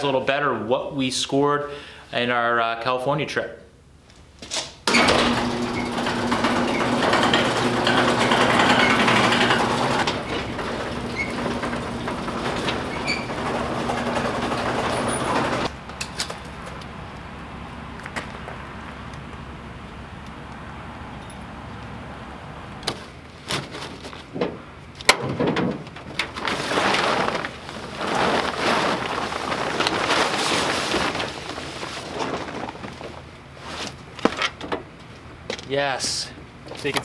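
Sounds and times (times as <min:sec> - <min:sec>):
garage door opener humming: 0:04.9 - 0:15.8.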